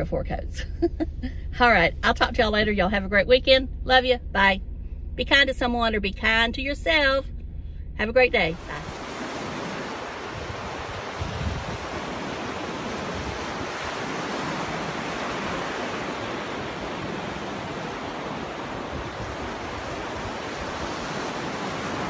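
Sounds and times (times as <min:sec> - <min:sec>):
ocean waves rushing onto beach: 0:08.5 - 0:22.0.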